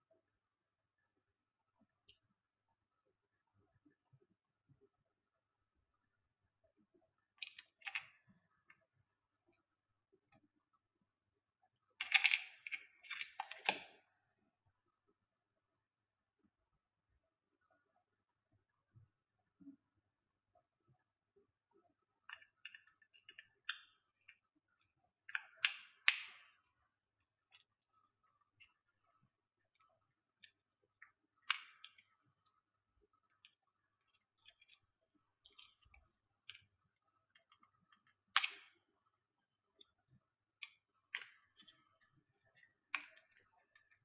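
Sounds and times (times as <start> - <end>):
plastic clicks and snaps: 12.0 - 14.0, 31.4 - 32.1, 37.4 - 38.8.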